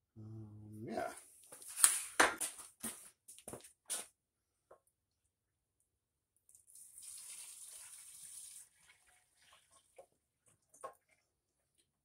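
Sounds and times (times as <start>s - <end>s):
fuel pouring into tank: 6.5s - 11.9s.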